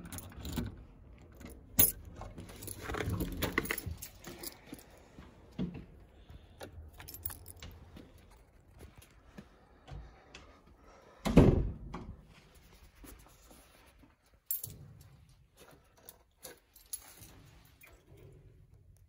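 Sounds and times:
keys jangling: 0:00.0 - 0:05.0, 0:06.6 - 0:08.8, 0:14.4 - 0:18.4.

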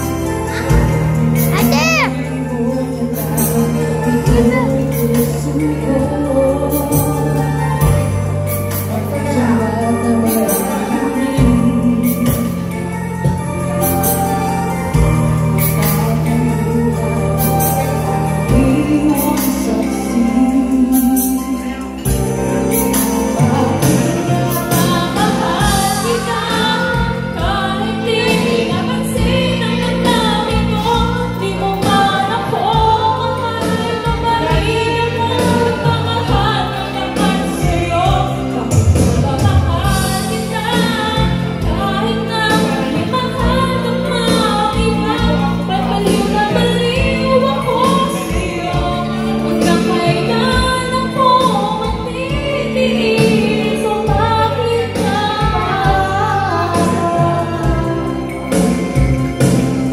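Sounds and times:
instrumental music with steady beat: 0:00.0 - 0:59.9
women singing into microphones: 0:00.0 - 0:59.9.

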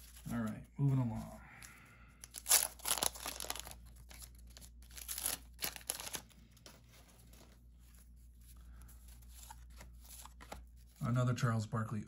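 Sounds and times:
wax-paper wrapper tearing and crinkling: 0:02.2 - 0:06.7.

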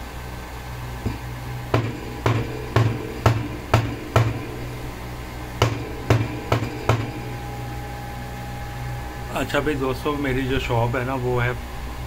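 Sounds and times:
steady low hum: 0:00.0 - 0:12.0
sharp knocks on metal casing: 0:01.0 - 0:04.7, 0:05.6 - 0:07.5.

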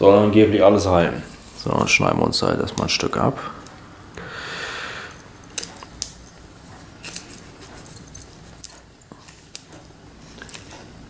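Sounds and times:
gloved hands rustling: 0:05.1 - 0:11.0.

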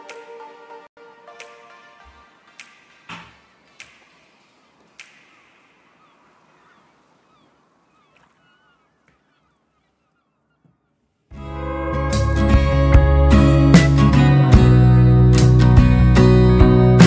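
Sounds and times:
sharp clicks: 0:02.6 - 0:06.5
faint bird chirps: 0:04.9 - 0:11.2.

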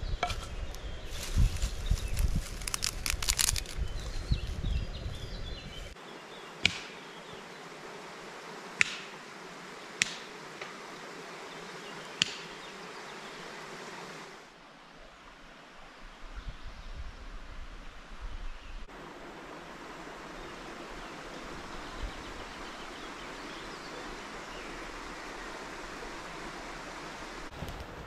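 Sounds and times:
forest background: 0:00.0 - 0:28.0
twig fire crackling: 0:00.2 - 0:04.6, 0:27.4 - 0:28.0.

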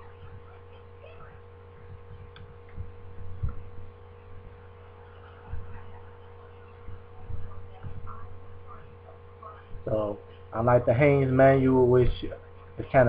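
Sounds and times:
low electrical hum: 0:00.0 - 0:13.0
dull low thumps: 0:01.7 - 0:04.7, 0:06.8 - 0:08.8.

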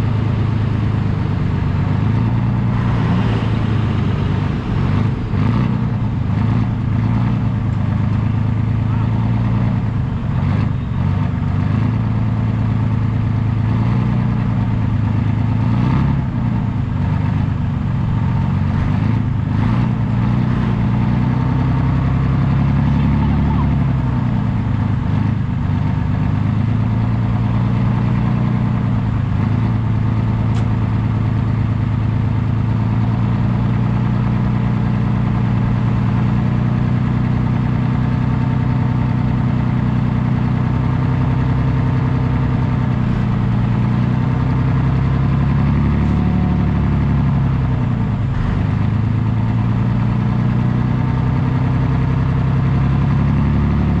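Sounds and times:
engine running steadily: 0:00.0 - 0:54.0.

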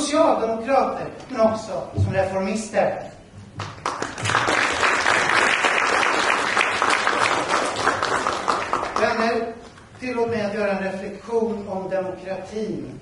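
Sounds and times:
audience applauding: 0:03.6 - 0:09.4.

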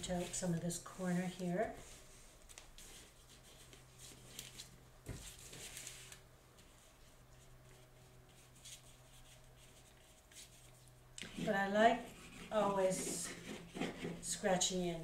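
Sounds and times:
brush rubbing on paper: 0:07.7 - 0:14.4.

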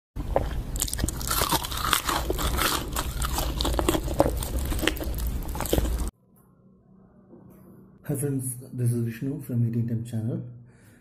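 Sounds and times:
crunching fried chicken: 0:00.3 - 0:06.1.

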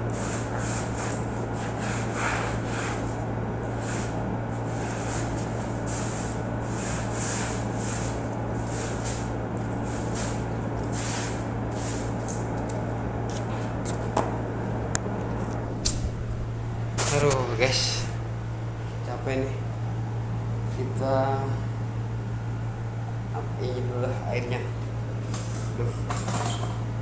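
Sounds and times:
air conditioner humming: 0:00.0 - 0:27.0
mop swishing across floor: 0:00.1 - 0:12.7.

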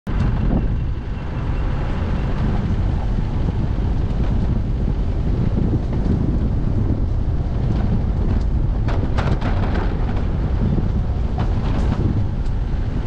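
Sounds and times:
vehicle rumbling on dirt track: 0:00.1 - 0:13.0
wind buffeting microphone: 0:00.1 - 0:13.0.

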